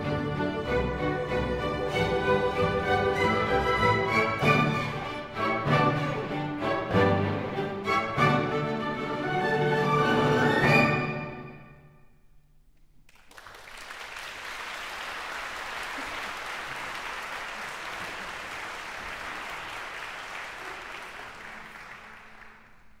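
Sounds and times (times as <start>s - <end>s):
audience applauding: 13.1s - 23.0s.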